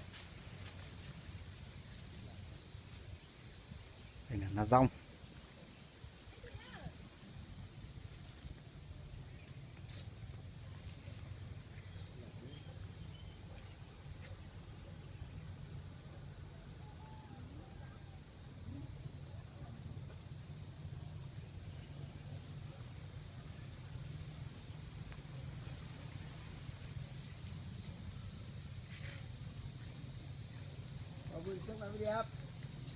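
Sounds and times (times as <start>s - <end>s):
insects shrilling: 0.0s - 14.0s, 21.4s - 32.9s.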